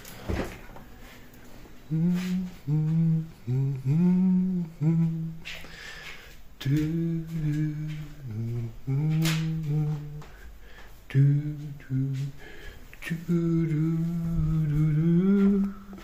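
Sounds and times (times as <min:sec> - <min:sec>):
man humming: 0:01.8 - 0:05.8, 0:06.6 - 0:10.5, 0:11.1 - 0:16.0.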